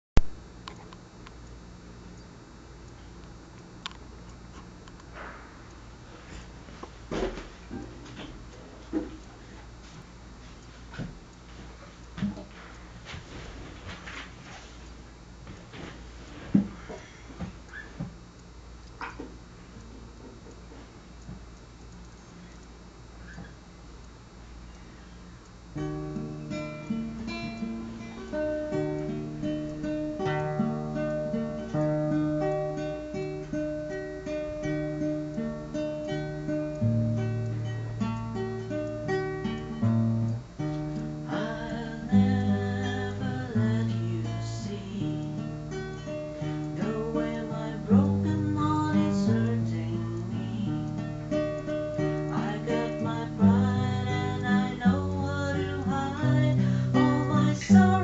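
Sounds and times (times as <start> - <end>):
acoustic guitar playing: 25.7 - 58.0.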